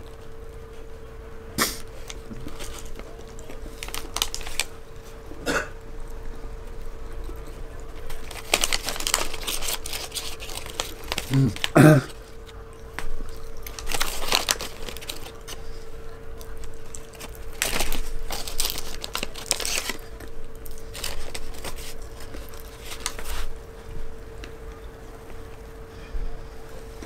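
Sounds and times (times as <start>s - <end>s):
faint steady hum: 0.0s - 27.0s
paper bag crinkling: 1.8s - 5.3s, 7.7s - 24.1s.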